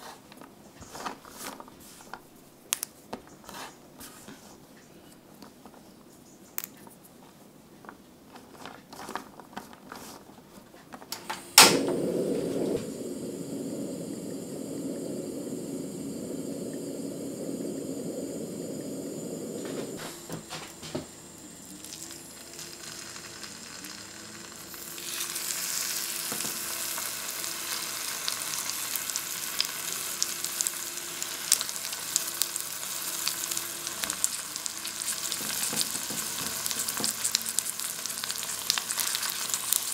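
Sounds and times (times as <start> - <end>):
sharp click: 11.1 - 12.0
steady low rushing: 11.7 - 21.7
tofu sizzling in hot oil: 13.0 - 39.9.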